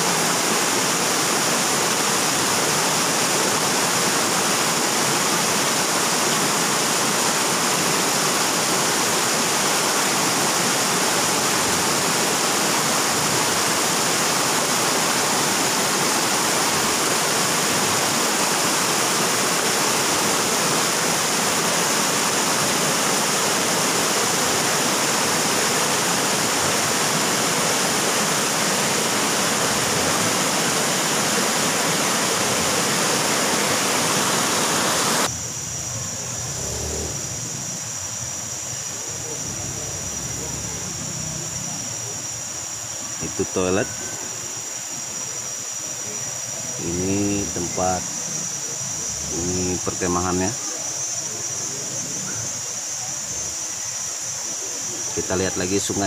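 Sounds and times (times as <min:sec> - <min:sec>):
river rushing over rocks: 0:00.0 - 0:35.8.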